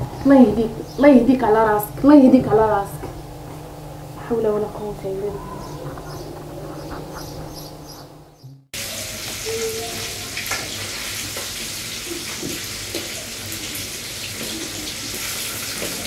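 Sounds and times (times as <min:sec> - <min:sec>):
food sizzling in a pan: 0:08.8 - 0:16.0.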